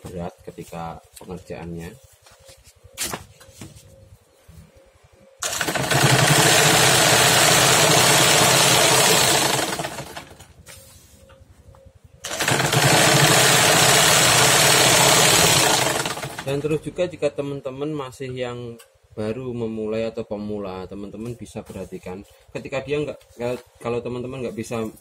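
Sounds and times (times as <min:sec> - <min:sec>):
sewing machine perforating paper: 0:05.4 - 0:10.4, 0:12.2 - 0:16.6.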